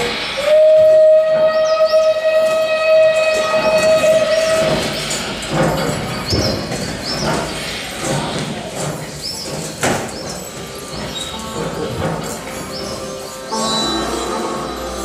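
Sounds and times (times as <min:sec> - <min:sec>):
train whistle: 0:00.0 - 0:05.2
high squeals: 0:00.0 - 0:15.0
moving train rattling: 0:00.0 - 0:15.0.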